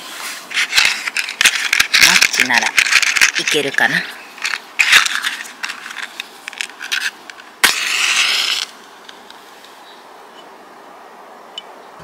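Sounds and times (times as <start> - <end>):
match scratching on striker: 4.4 - 8.8
match striking and flaring: 4.5 - 8.8
match flame hissing: 6.9 - 8.8.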